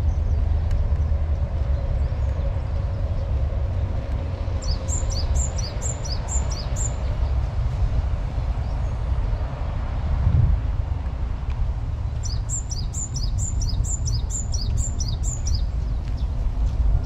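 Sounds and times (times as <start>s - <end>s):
steady low rumble: 0.0s - 17.0s.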